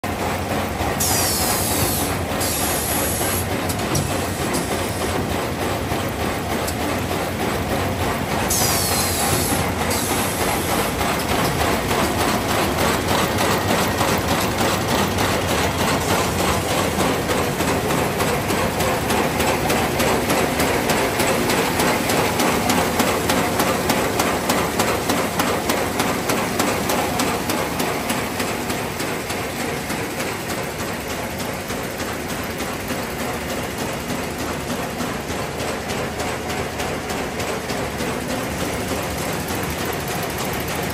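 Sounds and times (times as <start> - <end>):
machine fast mechanical clatter: 0.1 - 40.9.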